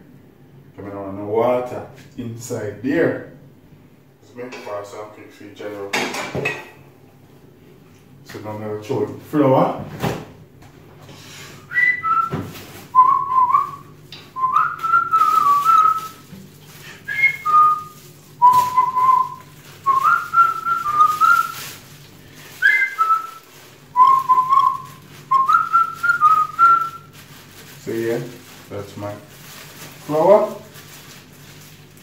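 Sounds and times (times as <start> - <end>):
person whistling a tune: 11.6 - 13.8, 14.4 - 16.2, 17.0 - 21.6, 22.6 - 23.4, 24.0 - 27.1.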